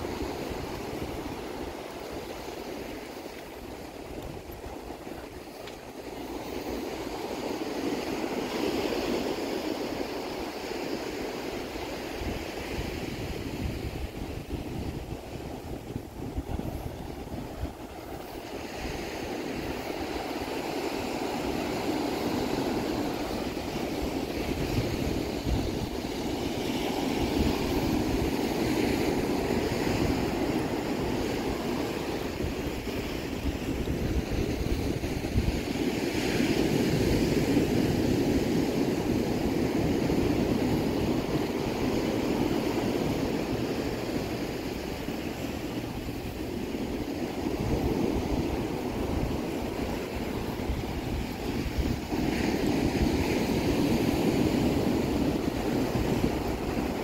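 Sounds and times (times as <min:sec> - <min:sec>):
surf washing onto beach: 0:00.0 - 0:57.0
wind buffeting microphone: 0:00.0 - 0:57.0.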